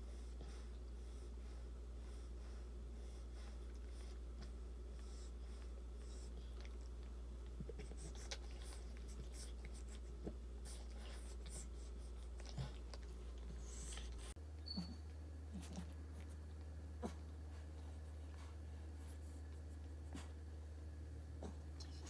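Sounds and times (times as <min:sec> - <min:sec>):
steady low hum: 0:00.0 - 0:22.0
dog licking puppy: 0:05.8 - 0:14.8.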